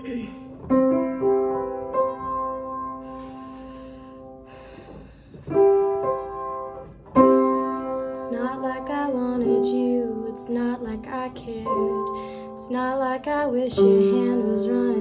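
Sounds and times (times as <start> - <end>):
piano chords: 0.0 - 15.0
woman singing: 8.2 - 15.0.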